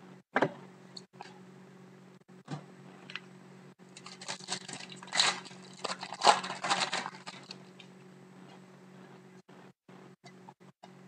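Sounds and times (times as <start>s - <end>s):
foil wrapper tearing and crinkling: 4.0s - 7.6s.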